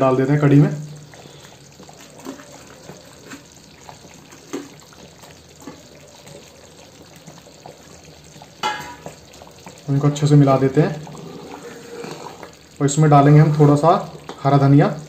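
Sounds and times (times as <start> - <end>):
faint steady bubbling: 0.0 - 15.0
food plopping into liquid: 1.0 - 9.9.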